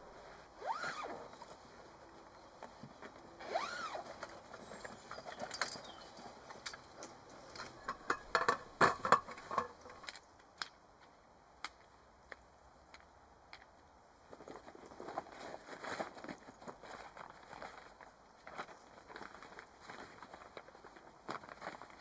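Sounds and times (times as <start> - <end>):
zip pulled open: 0.6 - 1.5, 3.4 - 4.3.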